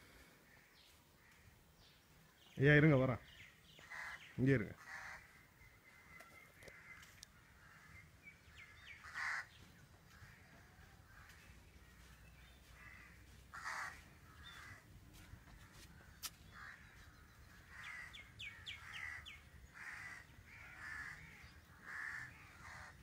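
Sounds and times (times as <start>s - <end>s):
crows cawing: 0.0s - 1.6s, 3.7s - 23.0s
faint bird chirps: 5.2s - 9.6s.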